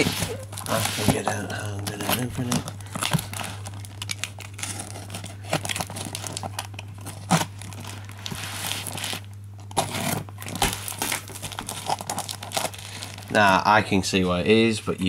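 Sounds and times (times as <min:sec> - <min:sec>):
cardboard box being opened: 0:00.0 - 0:03.5
packaging crinkling and tearing: 0:00.0 - 0:13.8
steady low hum: 0:00.0 - 0:15.0.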